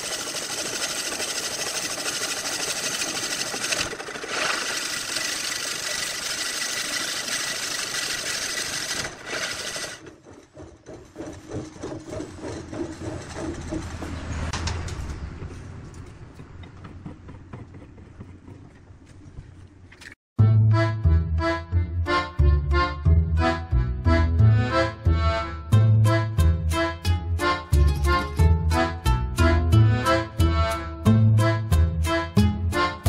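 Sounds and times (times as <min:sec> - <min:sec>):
tool scraping wood on lathe: 0:00.0 - 0:14.8
lathe low hum: 0:00.0 - 0:20.1.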